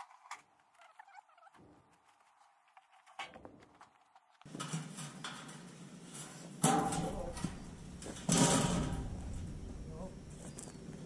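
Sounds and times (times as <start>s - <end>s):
sheet metal clicks and rattles: 4.4s - 10.3s.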